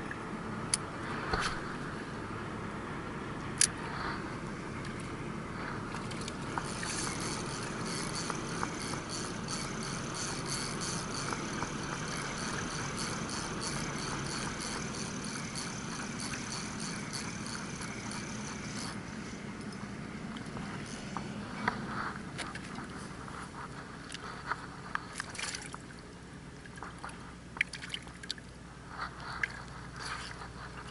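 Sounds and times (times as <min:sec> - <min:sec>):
water: 0:00.0 - 0:30.9
wind: 0:00.0 - 0:30.9
fishing reel ticking whir: 0:04.8 - 0:25.9, 0:29.0 - 0:30.9.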